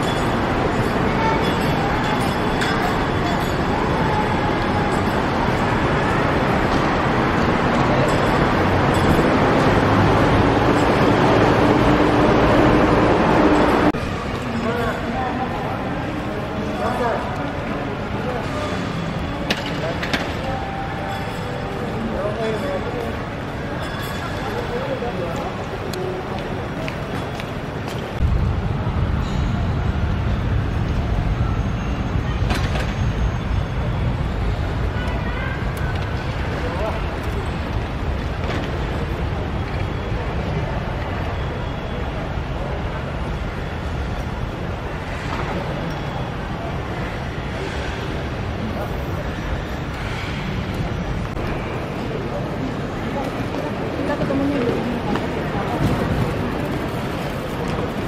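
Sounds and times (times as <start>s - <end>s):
murmur of voices: 0.0s - 58.0s
traffic and activity: 0.0s - 58.0s
low rumble: 28.2s - 31.6s.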